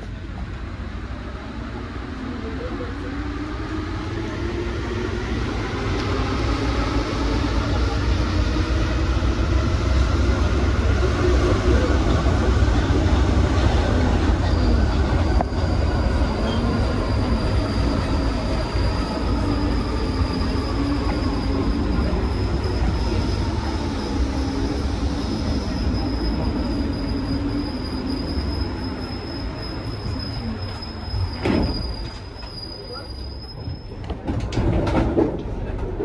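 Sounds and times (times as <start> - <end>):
train running gear rumble: 5.3 - 36.0.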